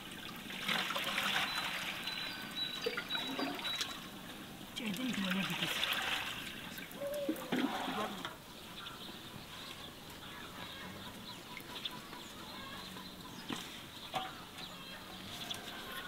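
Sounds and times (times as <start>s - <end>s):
chickens clucking: 6.0s - 16.0s.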